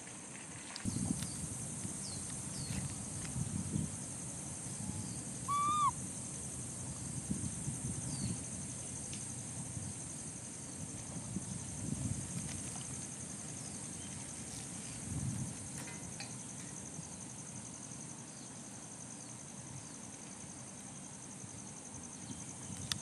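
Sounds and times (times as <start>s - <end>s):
high insect buzz: 0.9s - 20.0s
animal call rising and falling: 5.5s - 5.9s.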